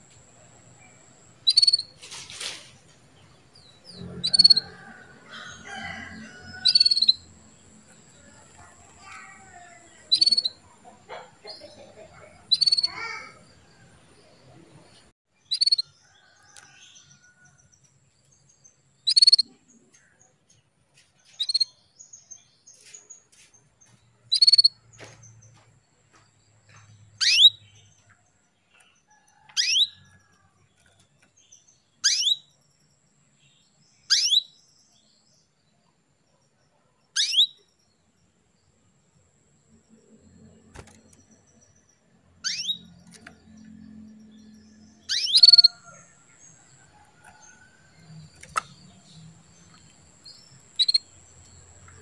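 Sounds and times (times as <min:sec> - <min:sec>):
canary chirping: 0:00.8 - 0:02.4, 0:03.0 - 0:13.7, 0:15.4 - 0:17.4, 0:18.8 - 0:19.7, 0:21.3 - 0:21.8, 0:24.2 - 0:25.6, 0:26.9 - 0:28.2, 0:28.8 - 0:32.6, 0:33.6 - 0:34.6, 0:37.1 - 0:37.7, 0:40.8 - 0:52.0.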